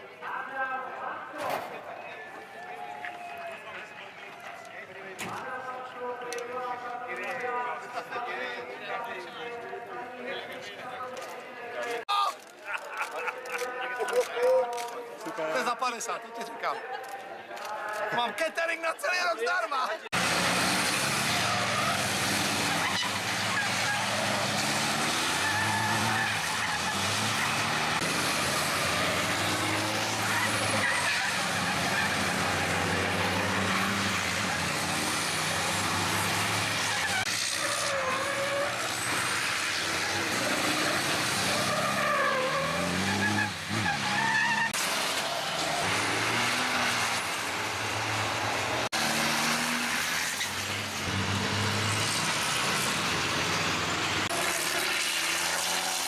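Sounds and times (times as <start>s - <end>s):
racing truck engines: 19.7s - 56.0s.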